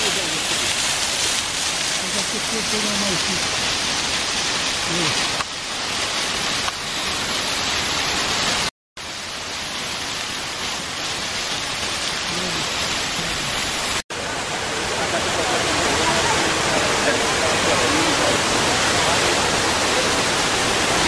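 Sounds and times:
fountain water splashing into basin: 0:00.0 - 0:21.0.

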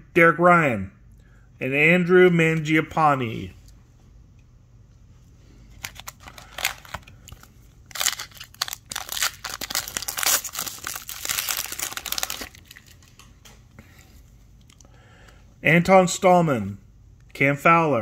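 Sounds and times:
foil wrapper tearing and crinkling: 0:05.8 - 0:13.1.

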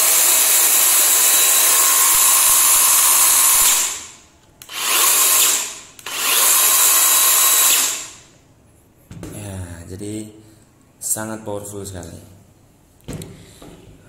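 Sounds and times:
chainsaw running with no load: 0:00.0 - 0:04.0, 0:04.7 - 0:08.1.

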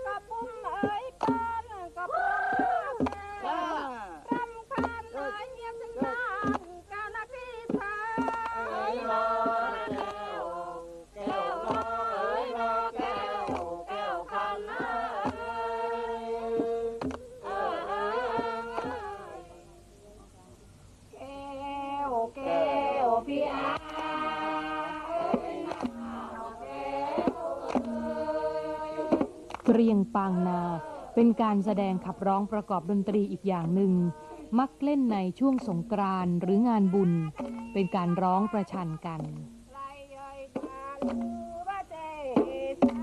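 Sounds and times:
folk chorus singing: 0:00.0 - 0:20.1, 0:21.1 - 0:34.8, 0:35.6 - 0:43.0
sharp claps: 0:00.8 - 0:01.5, 0:02.5 - 0:03.4, 0:04.3 - 0:05.4, 0:06.0 - 0:06.7, 0:07.7 - 0:08.7, 0:09.4 - 0:10.3, 0:11.2 - 0:12.1, 0:13.0 - 0:13.8, 0:16.5 - 0:17.3, 0:18.4 - 0:19.1, 0:23.7 - 0:24.2, 0:25.2 - 0:26.0, 0:27.1 - 0:28.0, 0:29.0 - 0:29.9.

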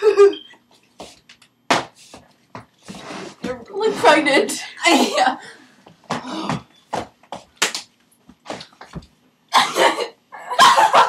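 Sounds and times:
girls giggling: 0:09.5 - 0:11.0.

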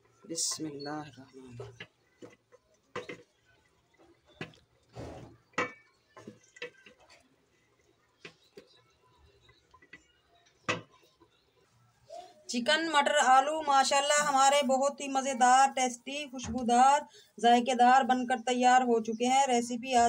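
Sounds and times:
gravy dripping: 0:00.0 - 0:12.0
spoon knocking and scraping pot: 0:01.5 - 0:07.6.

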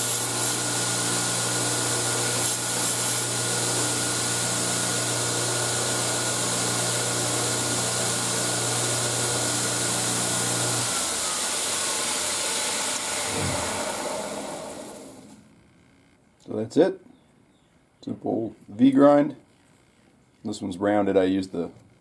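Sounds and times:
electric grinder running: 0:00.0 - 0:15.4
grinder winding down: 0:00.0 - 0:15.4.

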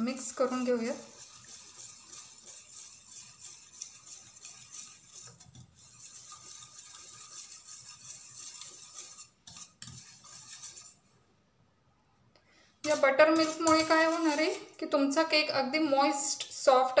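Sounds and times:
utensil scraping steel bowl: 0:00.0 - 0:11.1, 0:12.8 - 0:14.8.

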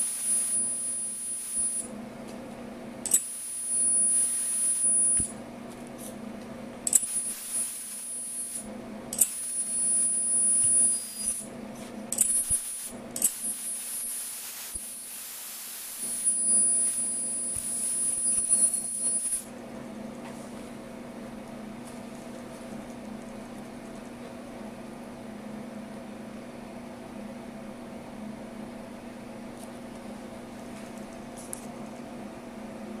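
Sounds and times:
cutting blade whine and hiss: 0:00.0 - 0:01.9, 0:03.1 - 0:05.3, 0:06.9 - 0:11.5, 0:12.2 - 0:19.5.

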